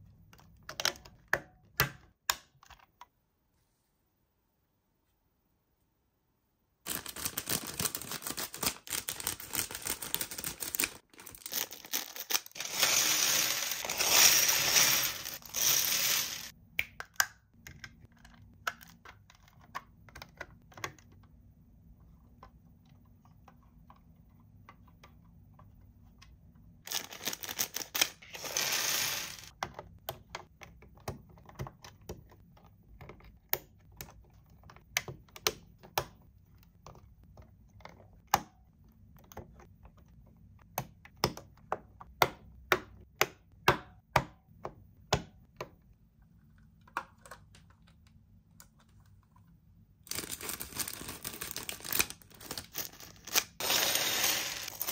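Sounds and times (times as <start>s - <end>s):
packaging rustling and tearing: 6.9s - 16.5s, 26.9s - 29.5s, 50.1s - 54.9s
plastic pieces clicking: 6.9s - 21.3s, 26.9s - 32.0s, 50.1s - 54.9s.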